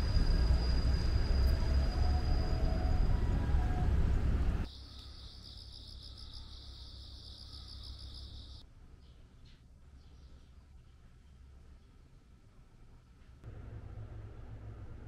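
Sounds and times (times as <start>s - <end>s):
insect trilling: 4.7s - 8.6s
low vehicle rumble: 13.4s - 15.0s.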